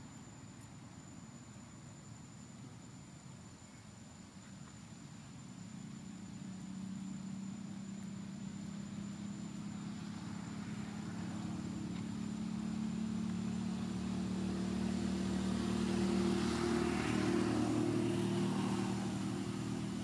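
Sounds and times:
passing vehicle engine hum: 5.6s - 20.0s.

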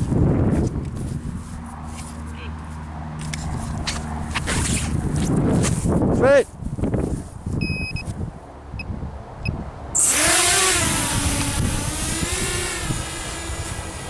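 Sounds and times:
short electronic beeps: 7.6s - 8.1s
quadcopter motors whining: 10.0s - 14.0s.

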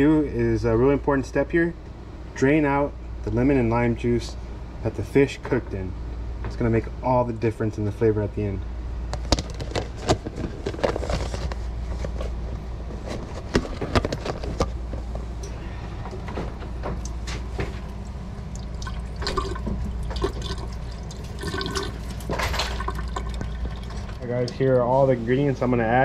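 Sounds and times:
juice pouring into a metal sink: 17.9s - 24.4s.

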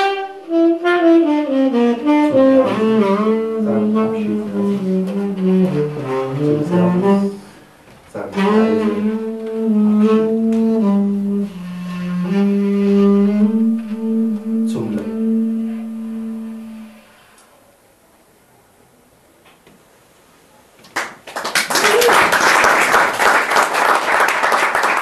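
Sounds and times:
low tenor saxophone: 0.0s - 17.4s.

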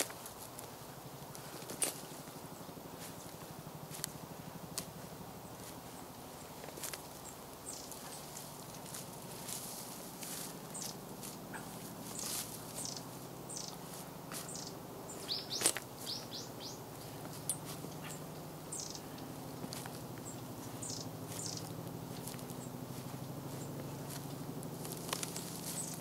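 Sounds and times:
small birds chirping: 0.0s - 26.0s.

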